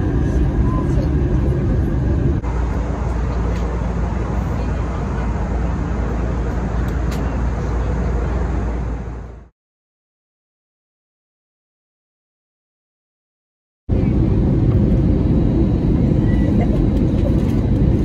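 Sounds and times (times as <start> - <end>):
airliner cabin engine rumble: 0.0 - 9.5, 13.9 - 18.0.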